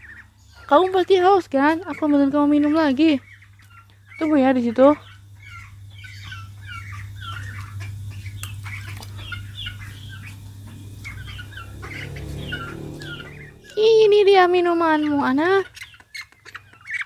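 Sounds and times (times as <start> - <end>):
small birds chirping: 0.0 - 17.0
steady low hum: 0.0 - 17.0.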